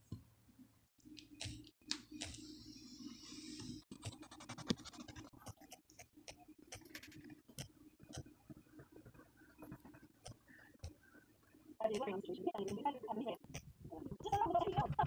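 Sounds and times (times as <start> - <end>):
paintbrush scratching and tapping: 3.2 - 11.0.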